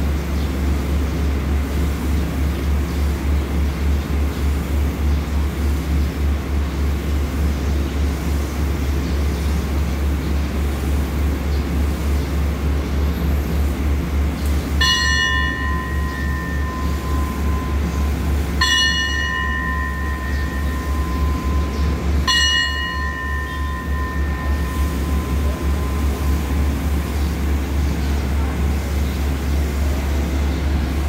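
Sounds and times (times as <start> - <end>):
diesel train engine idling: 0.0 - 31.0
bell ringing: 14.8 - 27.2.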